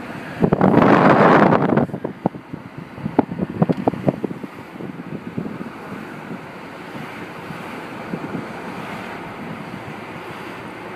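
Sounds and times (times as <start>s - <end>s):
wind rushing over microphone: 0.0s - 10.9s.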